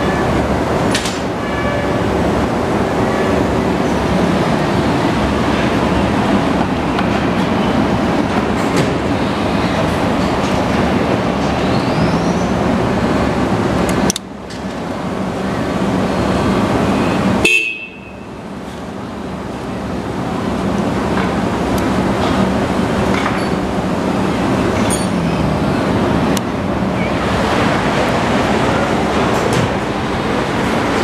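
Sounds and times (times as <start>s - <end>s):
horn honk: 0.0s - 0.5s, 1.4s - 2.1s, 17.0s - 18.4s.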